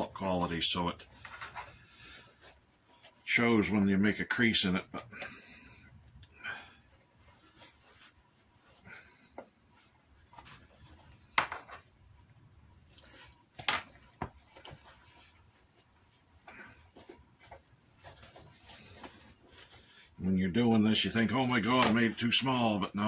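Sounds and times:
leather rubbing and creasing: 14.1s - 20.1s.

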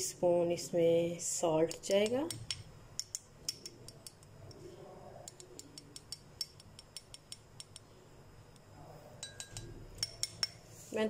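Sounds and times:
measuring spoon clinking glass bowl: 9.2s - 10.7s.

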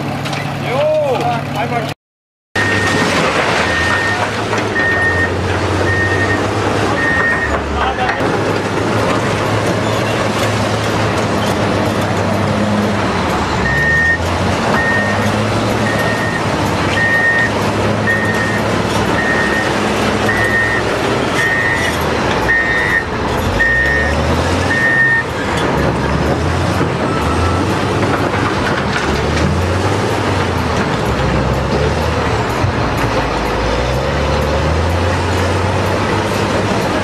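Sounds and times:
reversing alarm beeping: 2.6s - 3.0s, 3.6s - 7.6s, 13.6s - 18.6s, 19.2s - 25.3s
heavy diesel machines rumbling: 2.6s - 37.0s.

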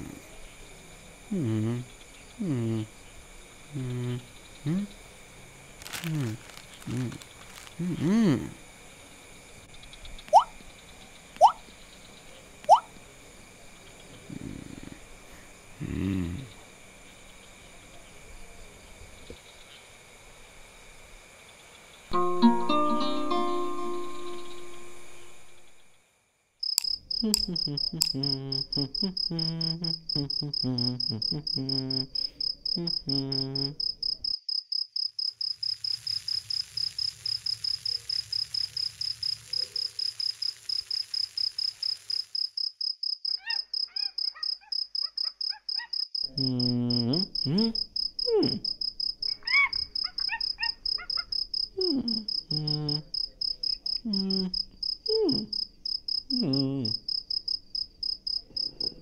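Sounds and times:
frogs croaking: 0.0s - 22.1s, 23.8s - 59.0s
even hissing noise: 0.0s - 34.2s, 35.2s - 43.0s
crickets chirping: 0.0s - 59.0s.

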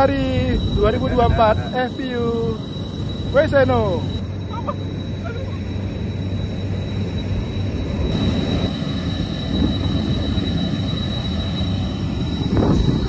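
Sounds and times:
faint high whine: 0.0s - 13.0s
machinery drone: 0.0s - 13.0s
wind on microphone: 12.0s - 13.0s.

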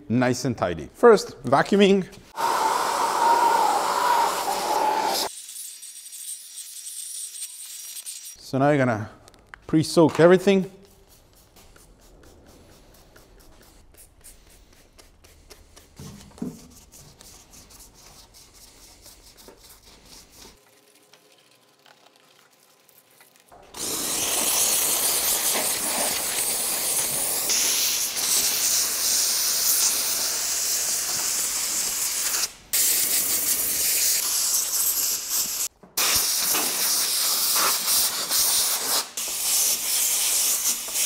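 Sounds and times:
steam cleaner hissing: 2.3s - 5.3s, 23.7s - 41.0s
spray bottle spritzes: 2.7s - 8.4s, 10.8s - 17.5s, 23.7s - 41.0s.

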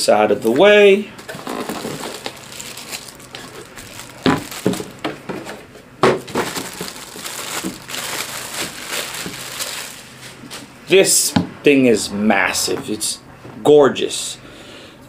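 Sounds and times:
packaging crinkling: 1.2s - 10.3s.

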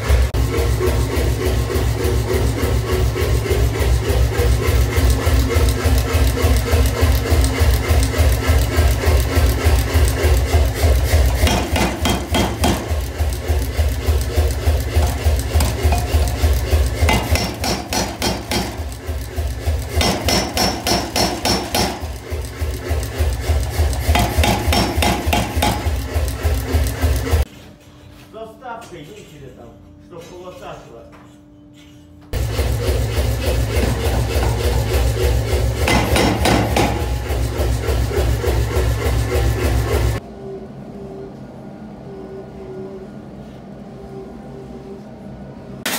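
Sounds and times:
machine low running drone: 0.0s - 28.2s, 31.4s - 45.9s
power hammer blows on steel: 4.0s - 27.4s, 32.4s - 40.2s.

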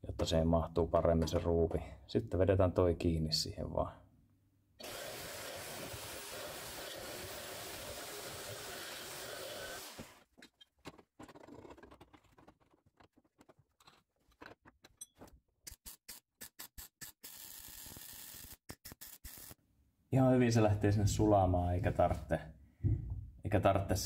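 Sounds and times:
electric drill milling steel: 4.8s - 10.2s, 17.2s - 19.6s.

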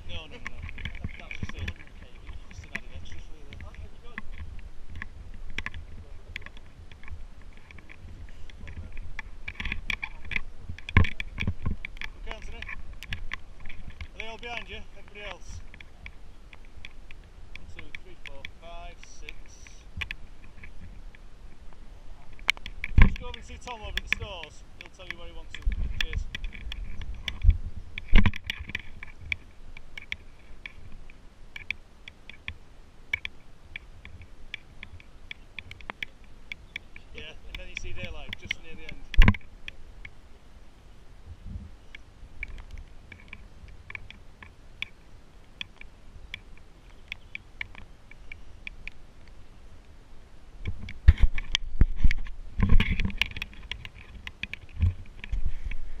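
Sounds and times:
wind rumble on microphone: 0.0s - 56.0s
light clicks and taps: 0.1s - 40.2s, 41.9s - 49.4s, 50.6s - 56.0s
camera handling knocks and rubs: 6.4s - 15.9s, 50.7s - 55.8s.

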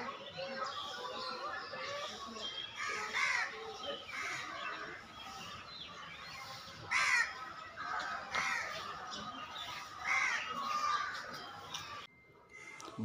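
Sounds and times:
crows cawing: 2.8s - 4.8s, 6.9s - 9.0s, 10.0s - 11.3s.

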